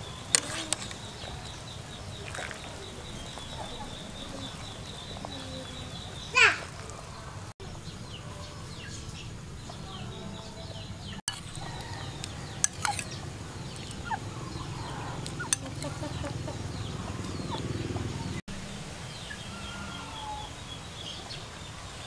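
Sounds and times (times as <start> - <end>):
birds chirping: 0.0 - 22.0
spoon clinking ceramic bowl: 11.3 - 13.2, 15.2 - 16.1.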